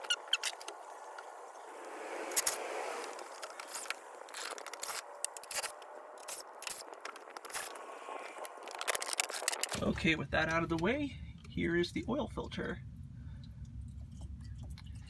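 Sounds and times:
rush of noise: 1.2s - 10.3s.

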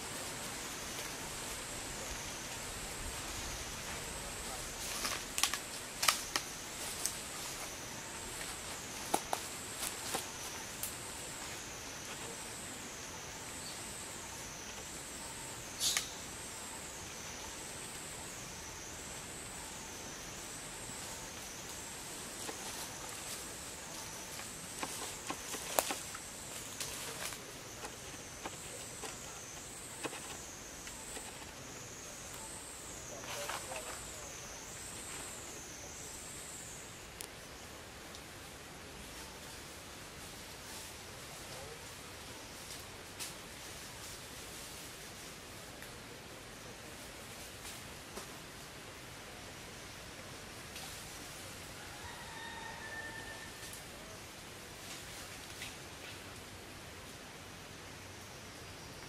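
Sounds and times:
faint insect drone: 0.0s - 59.0s
sharp clicks and rustles: 24.3s - 31.6s.

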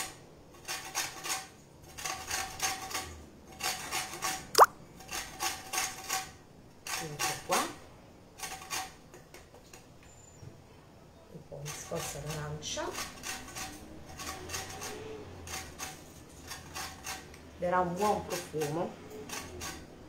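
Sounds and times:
grater rasping over peel: 0.6s - 4.4s, 11.6s - 17.3s, 18.1s - 20.0s.

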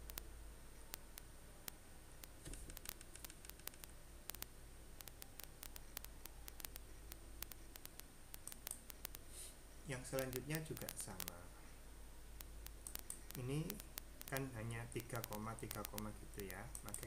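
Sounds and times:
low steady hum: 0.0s - 17.0s
keyboard and mouse clicks: 2.2s - 9.2s, 10.0s - 11.4s, 12.4s - 17.0s.

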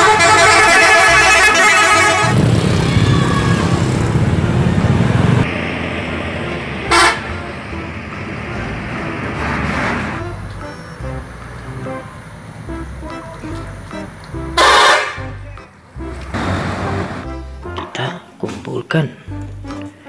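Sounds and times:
bus air horn: 0.0s - 3.8s, 6.4s - 11.3s, 12.7s - 17.9s
bus engine running: 0.0s - 20.0s.

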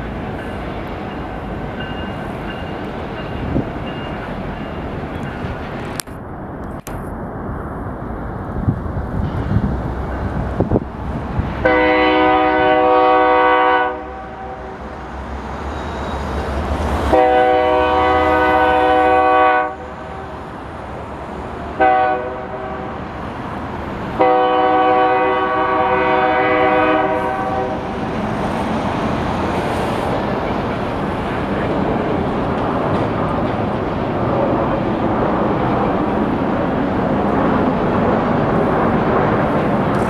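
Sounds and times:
train rumbling: 0.0s - 40.0s
locomotive horn blasts: 11.6s - 14.8s, 17.1s - 20.3s, 21.8s - 23.0s, 24.2s - 27.9s.

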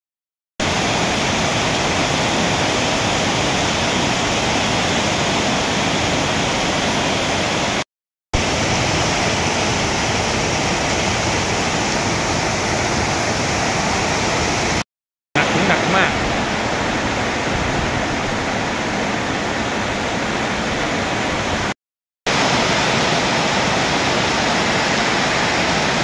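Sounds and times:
water streaming off roof: 0.6s - 7.8s, 8.4s - 14.8s, 15.4s - 26.0s
torrential rain: 8.4s - 14.8s, 15.4s - 26.0s.

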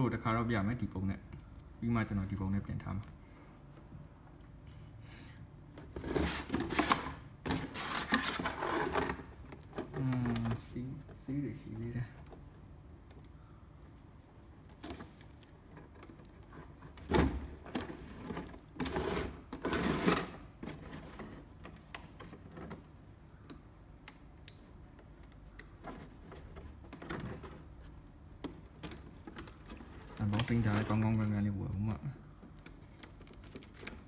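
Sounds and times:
rigid plastic packaging rustling: 5.8s - 11.0s, 28.8s - 31.9s.

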